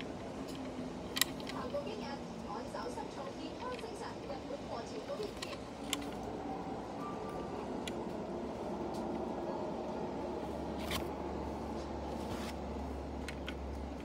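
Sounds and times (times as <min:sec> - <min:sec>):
steady background noise: 0:00.0 - 0:14.0
light clicks of toy bus handled: 0:13.2 - 0:14.0.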